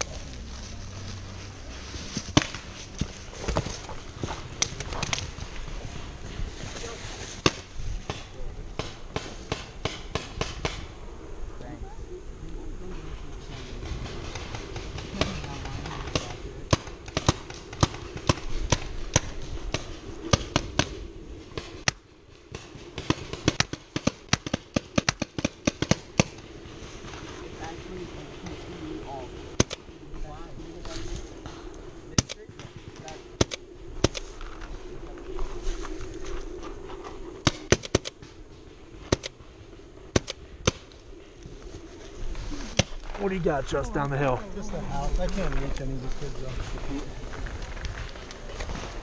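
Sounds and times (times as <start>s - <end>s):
paintball markers firing: 21.6s - 26.4s, 29.6s - 29.8s, 32.2s - 34.3s, 37.4s - 38.4s, 39.0s - 39.3s, 40.1s - 40.9s.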